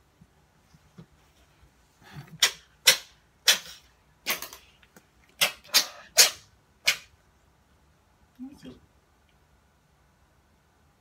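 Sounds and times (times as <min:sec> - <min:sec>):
cat sneezing: 0:05.6 - 0:07.0.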